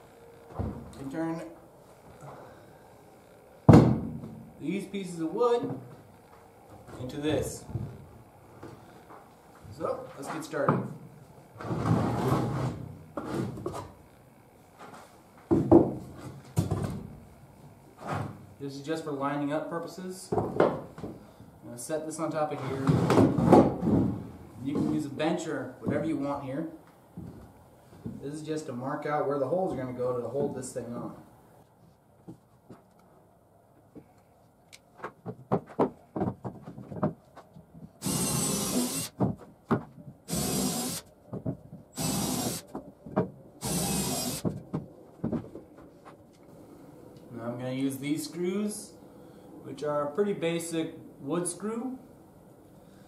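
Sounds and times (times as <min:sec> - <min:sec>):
cordless drill boring wood: 0:38.0 - 0:39.1, 0:40.3 - 0:41.1, 0:42.0 - 0:42.6, 0:43.6 - 0:44.5.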